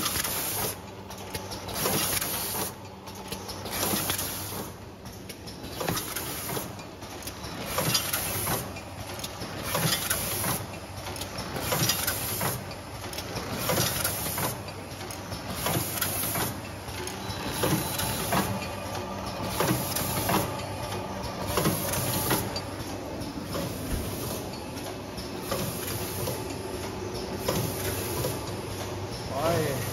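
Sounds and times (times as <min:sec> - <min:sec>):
packing machine clacking: 0:00.0 - 0:26.2
machine hum: 0:15.3 - 0:29.9.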